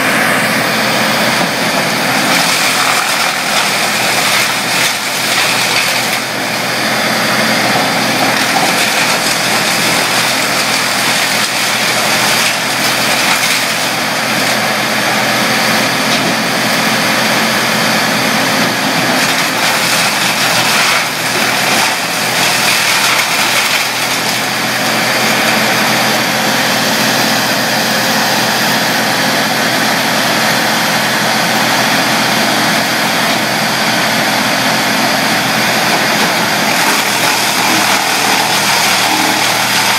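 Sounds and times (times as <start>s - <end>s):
brush chipper engine and drum: 0.0s - 39.9s
wood being chipped crackle: 2.1s - 14.6s, 19.0s - 25.3s, 35.9s - 39.9s.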